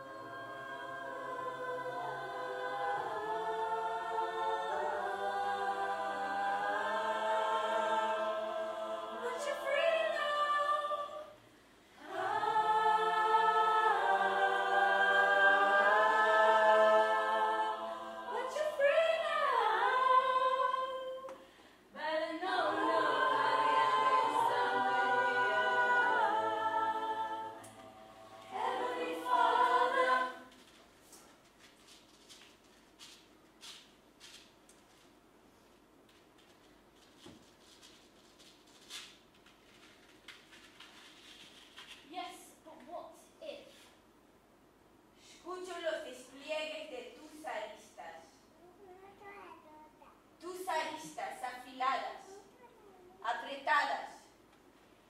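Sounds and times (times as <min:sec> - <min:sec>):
group singing a cappella: 0:00.0 - 0:30.8.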